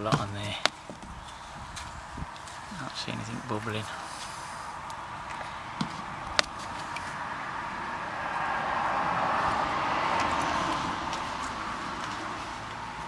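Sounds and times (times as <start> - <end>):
car passing by: 1.8 - 13.0.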